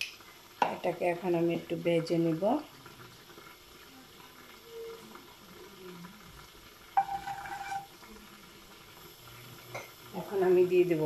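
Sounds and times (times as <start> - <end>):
spice seeds sizzling in oil: 0.0 - 11.0
wooden spatula knocking and scraping: 7.0 - 7.9.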